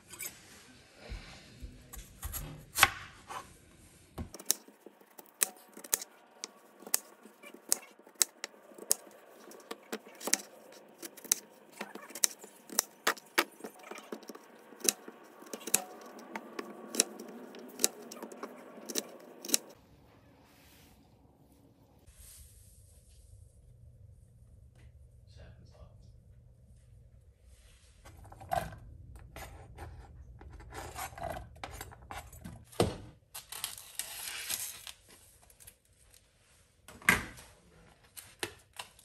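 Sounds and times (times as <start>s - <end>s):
knife chopping on cutting board: 4.2s - 19.7s.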